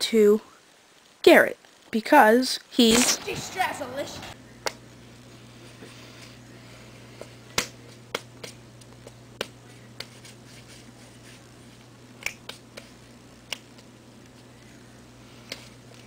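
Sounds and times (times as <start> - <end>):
finger snaps: 12.2 - 12.8, 13.5 - 13.7.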